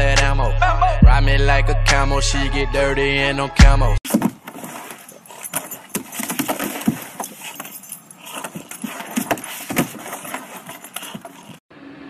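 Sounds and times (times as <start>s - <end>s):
dog claws scraping on plastic: 4.1s - 11.6s.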